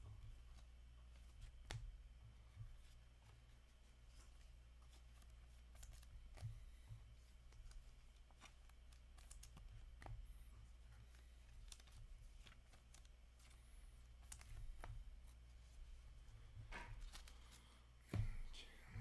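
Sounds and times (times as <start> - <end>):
low steady hum: 0.0 - 19.0
trading cards and wrappers rustling: 4.1 - 10.1, 10.8 - 15.8, 17.0 - 18.6.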